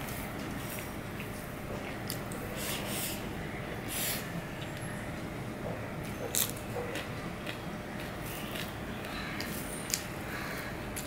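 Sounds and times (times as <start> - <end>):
person chewing: 6.3 - 10.0.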